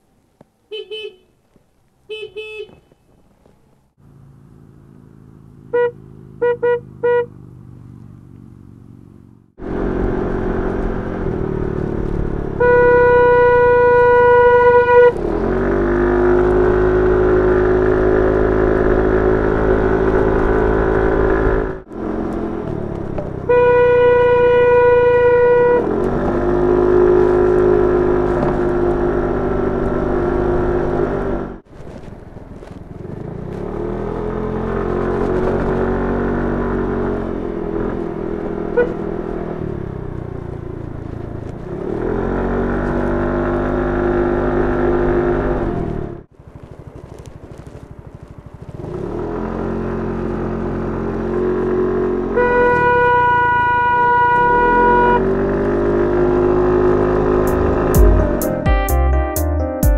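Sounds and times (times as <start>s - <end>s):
scooter engine accelerating: 4.1s - 58.7s
air horn blasts: 5.7s - 7.3s, 12.6s - 15.2s, 23.4s - 25.9s, 38.8s - 39.0s, 52.3s - 55.4s.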